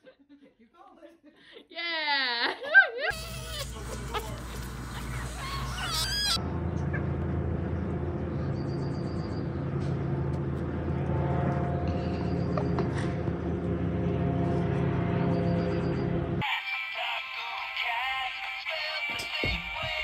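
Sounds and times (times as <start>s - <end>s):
kitten mewing: 3.1s - 6.4s
low mechanical hum: 3.1s - 16.4s.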